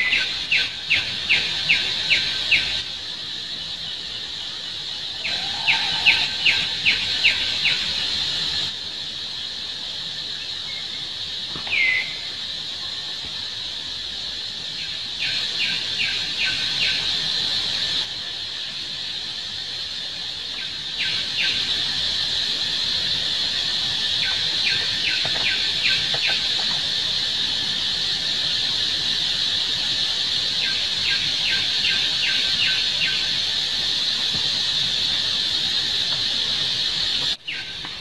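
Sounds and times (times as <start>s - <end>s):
insect chorus drone: 0.0s - 38.0s.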